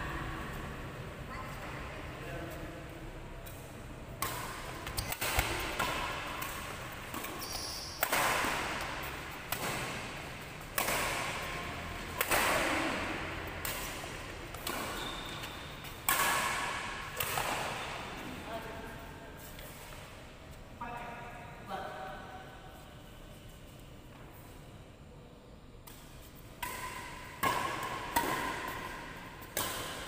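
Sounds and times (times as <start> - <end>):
racket hitting shuttlecock: 3.4 - 18.3, 25.8 - 30.0.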